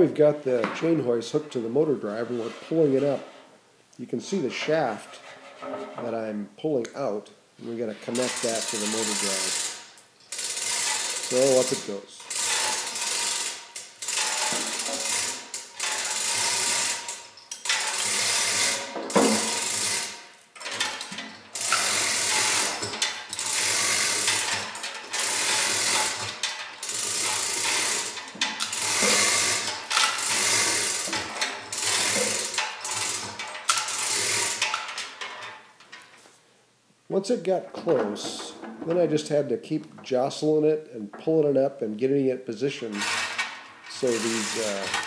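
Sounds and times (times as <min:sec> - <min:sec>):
chain rattling through hoist: 0:08.0 - 0:35.9, 0:42.9 - 0:45.0
hoist pawl clicking: 0:08.1 - 0:36.0, 0:43.0 - 0:45.0.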